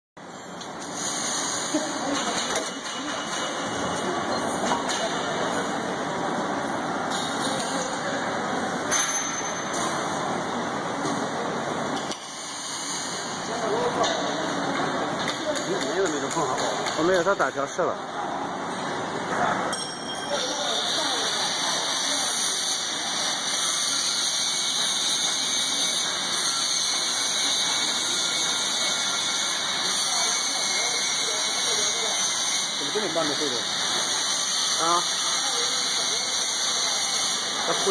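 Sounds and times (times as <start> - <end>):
welding machine running: 0.6 - 8.9, 20.4 - 37.9
welding torches hissing: 0.8 - 2.0.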